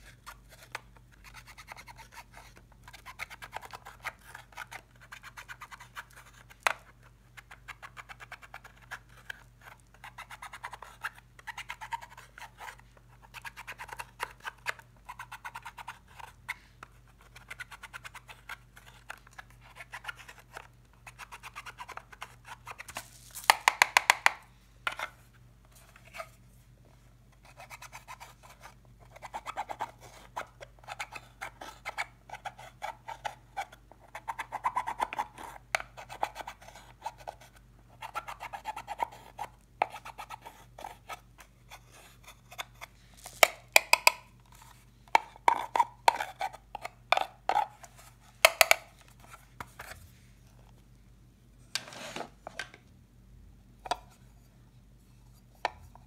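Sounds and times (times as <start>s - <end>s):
tool clicking on plastic: 43.4s - 44.3s, 48.4s - 48.9s.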